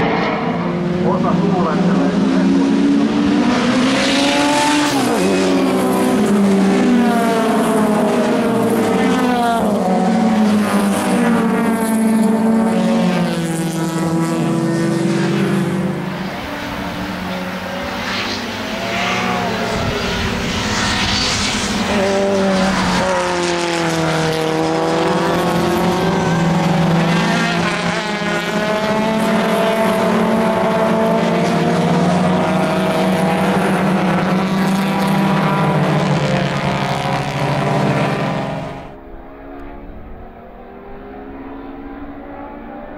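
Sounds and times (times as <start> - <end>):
race car engines accelerating: 0.0 - 42.9.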